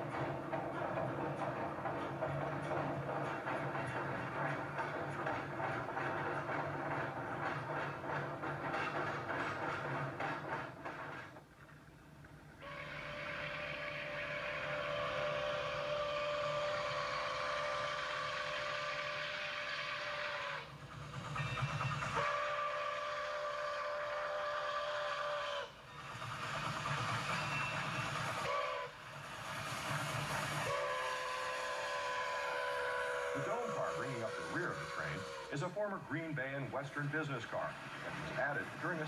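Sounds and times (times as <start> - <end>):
train rumbling past: 0.0 - 39.0
steam whistle blasts: 12.6 - 35.7.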